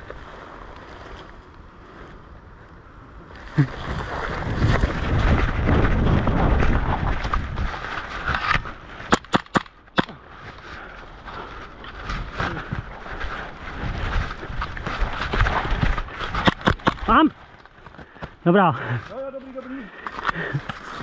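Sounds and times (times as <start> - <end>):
rumbling microphone rubbing: 3.4 - 9.1
sharp airsoft shots: 9.1 - 10.1, 16.4 - 17.1.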